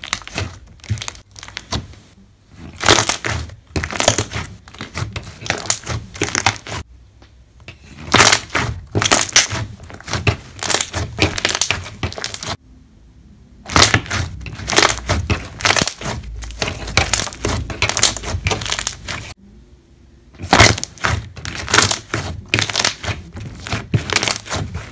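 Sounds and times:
hands squeezing slime: 0.0s - 1.8s, 2.6s - 6.8s, 20.4s - 24.9s.

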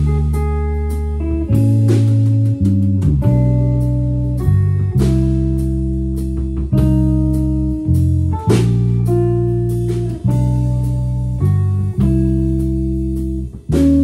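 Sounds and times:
bass notes: 0.0s - 14.0s
sustained electric guitar chords: 0.0s - 14.0s.

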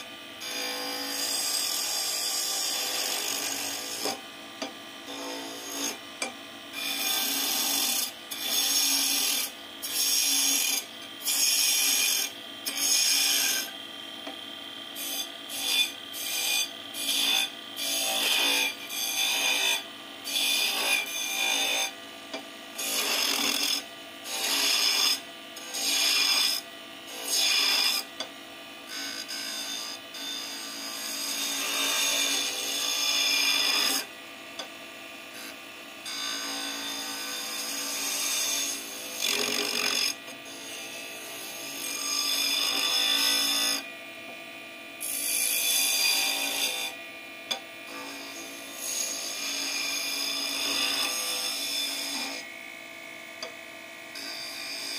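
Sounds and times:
chisel scraping spinning wood: 0.0s - 14.4s, 15.0s - 21.9s, 22.8s - 28.1s, 28.9s - 34.7s
wood lathe running: 0.0s - 28.3s, 28.9s - 34.7s, 35.3s - 43.8s, 45.0s - 46.9s, 47.5s - 54.9s.

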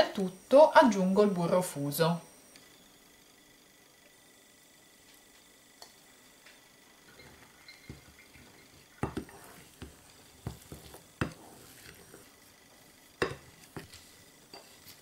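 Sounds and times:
spatula scraping dough in bowl: 7.9s - 12.4s, 13.2s - 15.0s
spatula knocking against bowl: 9.0s - 11.4s, 13.2s - 14.0s.

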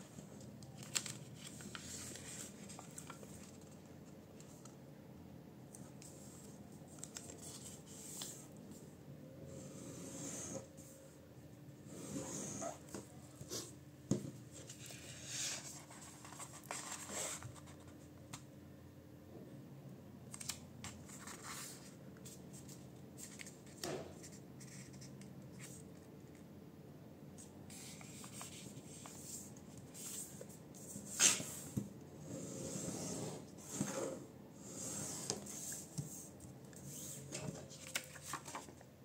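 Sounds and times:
paper rustling and creasing: 0.0s - 4.8s, 14.6s - 18.0s, 35.2s - 38.8s.

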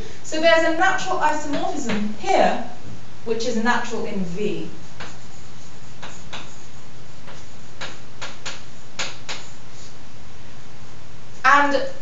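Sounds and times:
steady low hum: 0.0s - 12.0s
chalk tapping on blackboard: 4.7s - 10.0s.

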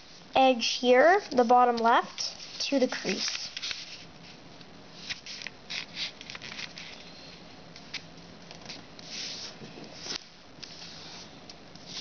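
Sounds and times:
paper rustling and crackling: 5.0s - 7.0s.

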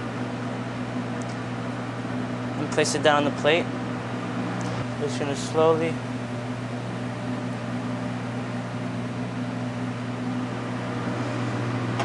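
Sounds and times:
kitchen machinery humming: 0.0s - 12.0s.

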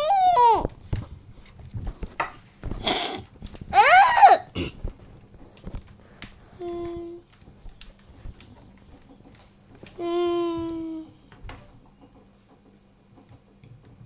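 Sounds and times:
child high cry: 0.0s - 0.7s, 3.7s - 4.5s
child breathy hiss: 2.8s - 3.2s.

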